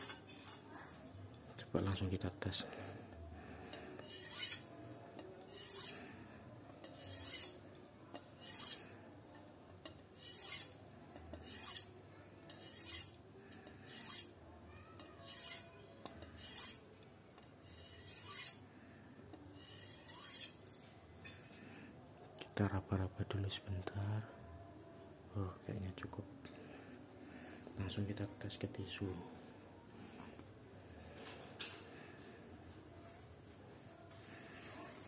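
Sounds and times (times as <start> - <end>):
knife scraping on sharpening steel: 3.7 - 4.8, 5.4 - 6.1, 6.8 - 9.0, 9.8 - 11.9, 12.5 - 14.4, 15.0 - 16.8, 17.4 - 18.6, 19.3 - 21.6.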